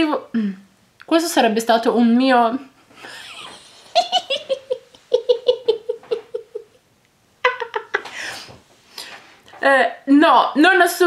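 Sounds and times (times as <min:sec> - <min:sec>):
woman laughing: 0:03.0 - 0:06.8, 0:07.4 - 0:08.2.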